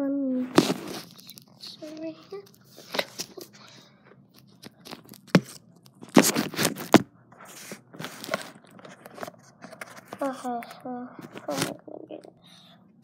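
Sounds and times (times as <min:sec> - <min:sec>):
handling noise on microphone: 0:00.4 - 0:03.5, 0:04.4 - 0:10.6, 0:11.2 - 0:11.9.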